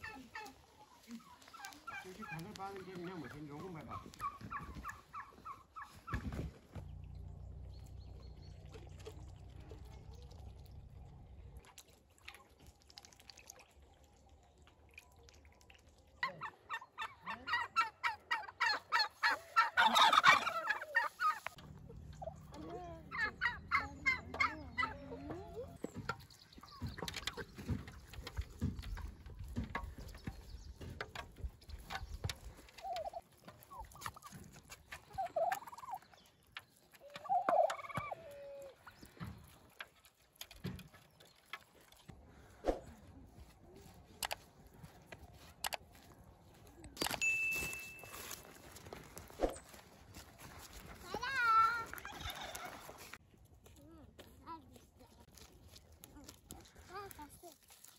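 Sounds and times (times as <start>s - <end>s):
turkeys gobbling: 0.0s - 6.5s, 16.2s - 40.2s, 51.9s - 53.2s.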